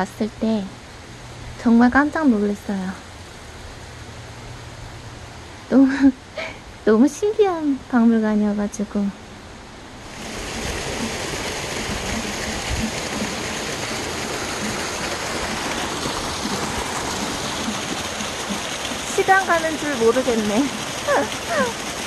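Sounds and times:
waterfall splashing over rocks: 0:10.1 - 0:22.0.

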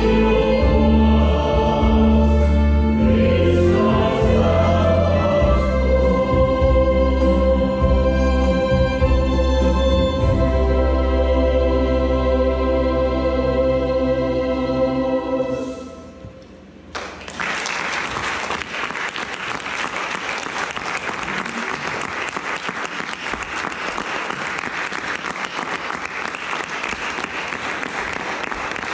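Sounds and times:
choir singing with violin: 0:00.0 - 0:16.4
audience applause: 0:17.0 - 0:28.9.

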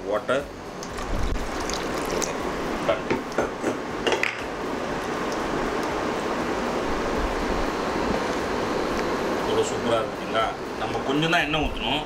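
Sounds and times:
water pouring into a pan: 0:00.8 - 0:02.5.

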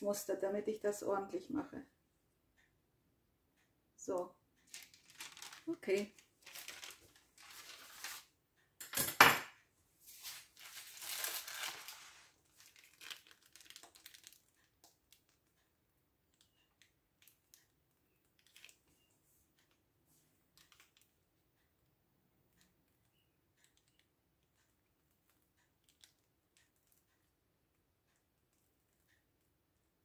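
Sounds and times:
crinkling and rustling handling: 0:04.6 - 0:08.3, 0:10.0 - 0:15.6, 0:16.3 - 0:21.1.

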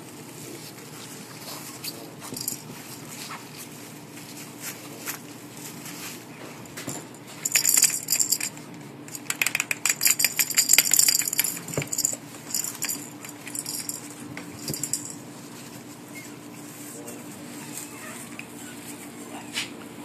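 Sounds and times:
small metal object jingling: 0:06.9 - 0:15.2.

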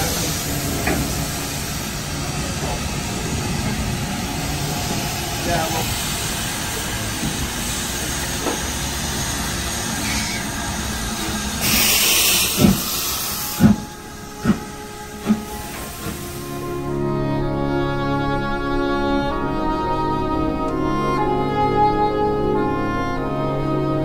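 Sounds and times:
cylinder drain cocks hissing: 0:00.0 - 0:16.7
steam hissing: 0:00.0 - 0:17.1
steam locomotive exhaust chuffs: 0:00.0 - 0:17.8.

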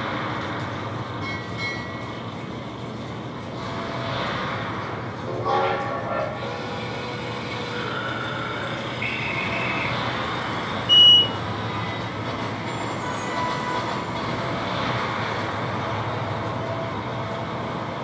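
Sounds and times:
short high beep: 0:10.9 - 0:11.4.

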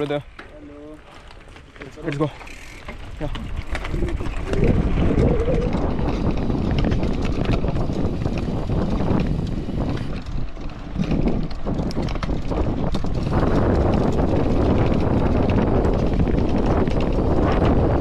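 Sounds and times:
tyres crunching over gravel: 0:00.0 - 0:05.2
bike clicking and rattling: 0:00.0 - 0:18.0
wind buffeting microphone: 0:02.2 - 0:18.0.

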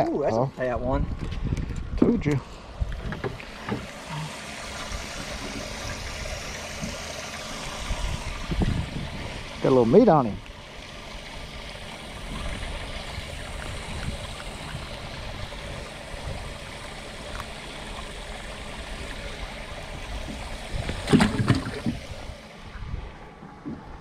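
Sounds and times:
wind on microphone: 0:00.7 - 0:03.2, 0:07.6 - 0:09.6, 0:12.2 - 0:16.8, 0:19.2 - 0:24.0
water lapping against boat hull: 0:01.1 - 0:24.0.

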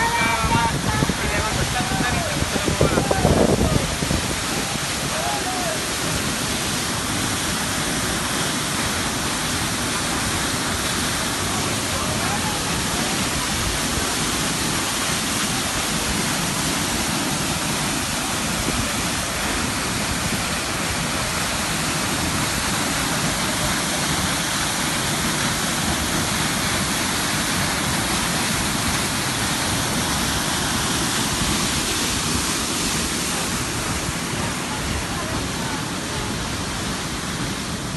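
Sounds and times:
waterfall rushing onto rocks: 0:00.0 - 0:37.9.

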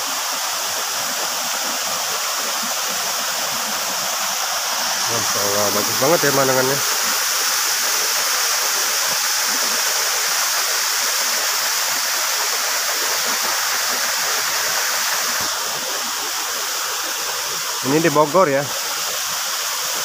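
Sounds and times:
waterfall roaring: 0:04.7 - 0:08.1.

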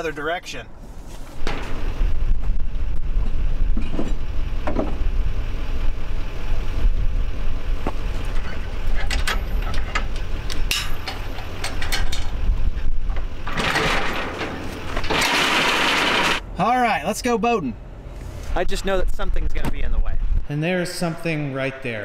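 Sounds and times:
low steady rumble: 0:00.0 - 0:15.1, 0:16.4 - 0:21.5
metal trailer hitch clanking: 0:08.3 - 0:12.4, 0:13.2 - 0:16.4.

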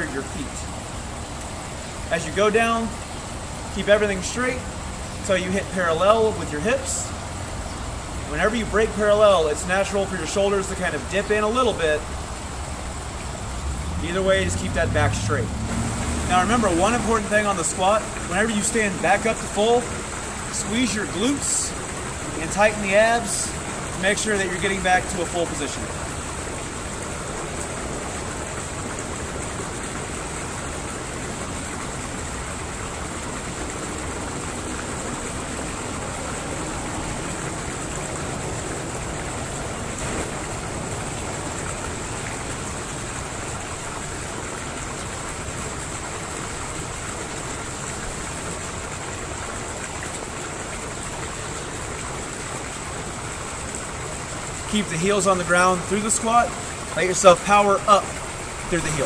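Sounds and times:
rushing background noise: 0:00.0 - 0:44.4.

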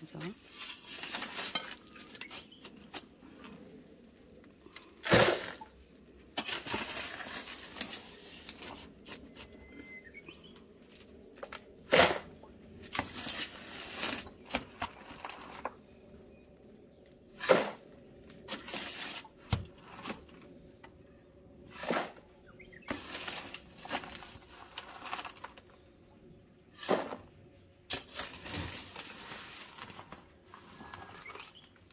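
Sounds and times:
shovel scraping gravelly soil: 0:00.4 - 0:03.6, 0:04.9 - 0:09.6, 0:11.8 - 0:15.8, 0:17.3 - 0:20.3, 0:21.7 - 0:25.7, 0:26.8 - 0:31.7
soil pouring into box: 0:04.8 - 0:05.8.

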